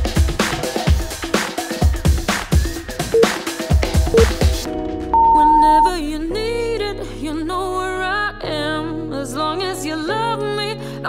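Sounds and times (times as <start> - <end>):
person singing: 5.2 - 11.0.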